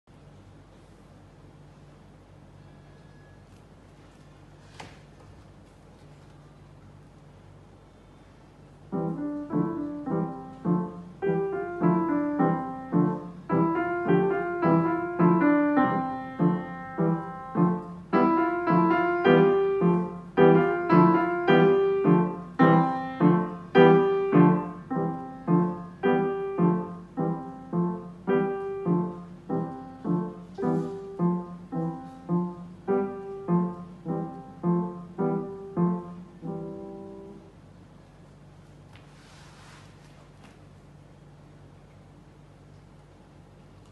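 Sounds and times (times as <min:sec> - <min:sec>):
upright piano piece: 0:08.6 - 0:37.9.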